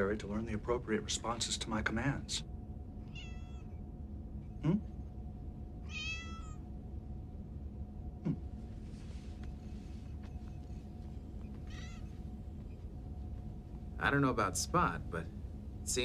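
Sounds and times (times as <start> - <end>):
cat meowing: 3.0 - 3.8, 5.8 - 6.6, 11.7 - 12.1.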